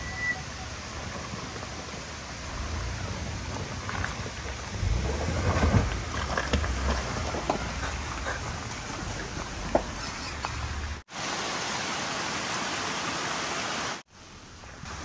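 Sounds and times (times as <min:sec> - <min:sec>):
tyres crunching on loose rocks: 0:01.0 - 0:10.8.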